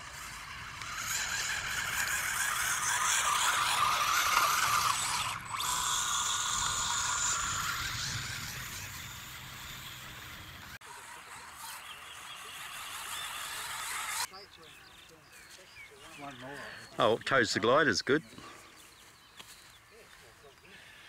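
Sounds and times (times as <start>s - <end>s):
electric motor whirring: 0.0s - 14.4s.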